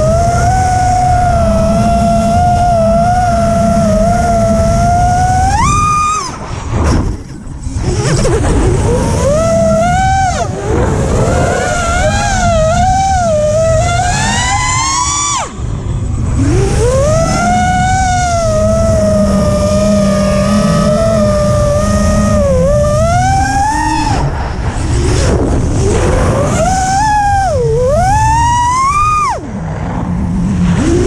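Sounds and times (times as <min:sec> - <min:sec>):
drone motors whining: 0:00.0 - 0:31.0
wind rushing: 0:23.2 - 0:28.6.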